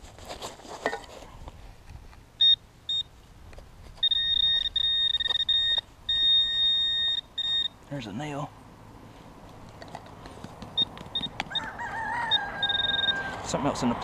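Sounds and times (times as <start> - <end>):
soil scraping: 0.0 - 2.0
metal detector beeping: 2.4 - 3.1, 4.0 - 7.8, 10.7 - 13.4.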